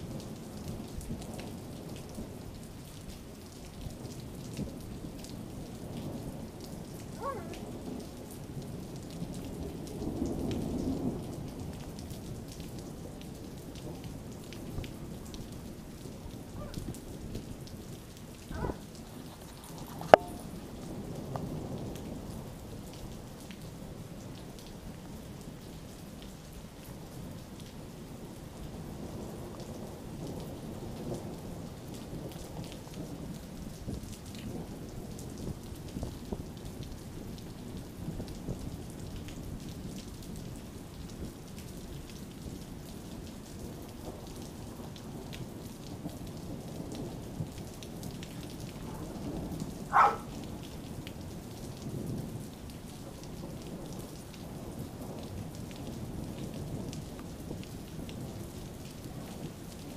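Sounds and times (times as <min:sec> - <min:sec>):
rain falling: 0:00.0 - 0:59.9
rolling thunder: 0:46.9 - 0:51.0.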